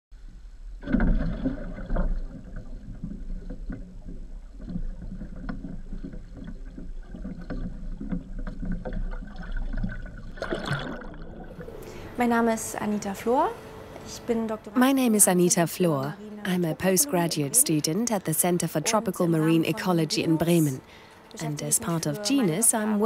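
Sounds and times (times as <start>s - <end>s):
sea water splashing: 0.7s - 12.6s.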